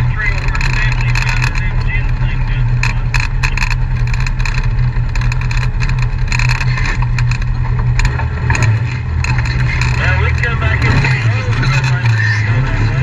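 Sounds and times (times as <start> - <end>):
off-road vehicle engine running: 0.0 - 13.0
clicks and crunches: 2.8 - 12.2.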